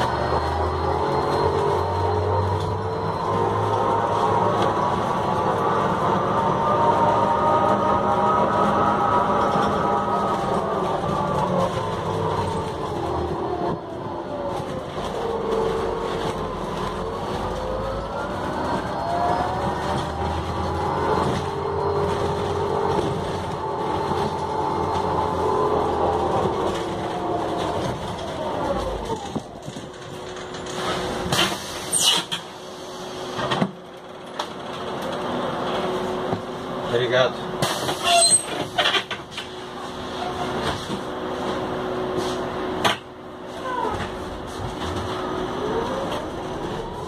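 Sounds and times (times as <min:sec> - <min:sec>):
drivetrain whine: 0:00.0 - 0:31.8
bus engine rumble: 0:00.0 - 0:47.0.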